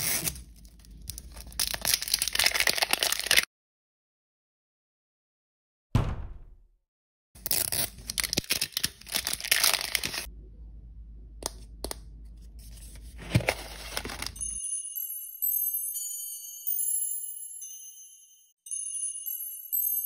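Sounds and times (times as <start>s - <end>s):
plastic wrapping crinkling and tearing: 0.0s - 3.5s, 7.4s - 10.3s, 13.2s - 14.5s
sharp knock: 6.0s - 6.7s.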